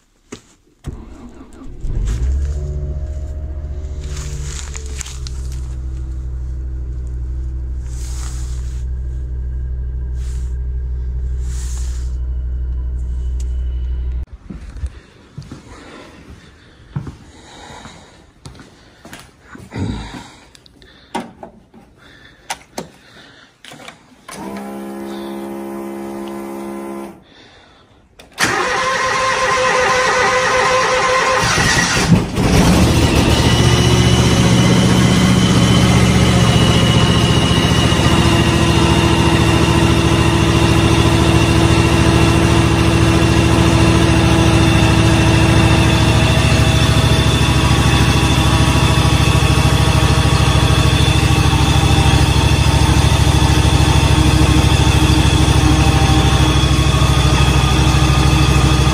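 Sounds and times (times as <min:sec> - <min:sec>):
tractor engine cranking and running: 0:00.8 - 0:14.3, 0:23.6 - 0:27.1, 0:28.2 - 0:58.9
steady electronic tone: 0:01.8 - 0:14.3.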